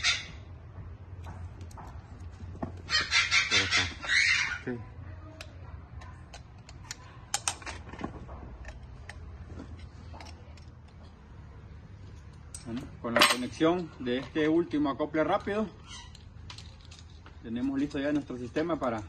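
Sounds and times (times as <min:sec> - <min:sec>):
chicken calling: 0:00.0 - 0:00.5, 0:02.9 - 0:04.7.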